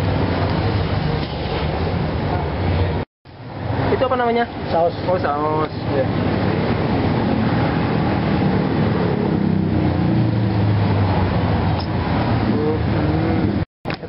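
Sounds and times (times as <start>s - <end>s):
street traffic: 0.0s - 14.0s
vehicle engine passing: 3.5s - 13.6s.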